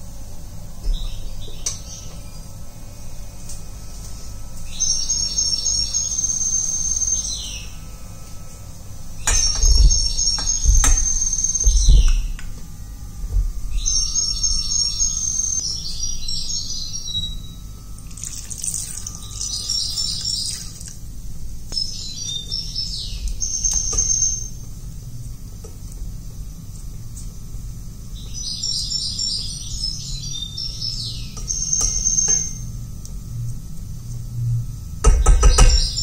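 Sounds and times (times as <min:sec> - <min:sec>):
low steady hum: 0:00.0 - 0:36.0
small bird chirping and trilling: 0:13.7 - 0:20.9.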